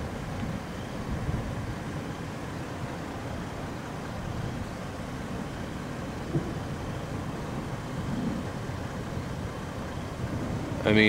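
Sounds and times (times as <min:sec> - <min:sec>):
car idling rumble: 0:00.0 - 0:11.0.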